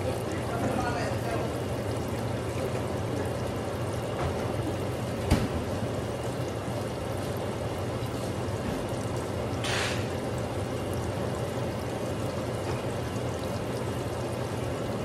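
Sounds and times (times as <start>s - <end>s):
fish sizzling in hot oil: 0.0s - 15.0s
louder oil hiss: 9.6s - 10.2s.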